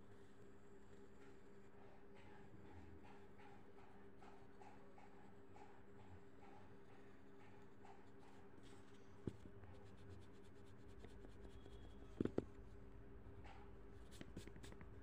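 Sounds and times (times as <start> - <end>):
pencil on paper: 2.4 - 12.4, 13.4 - 15.0.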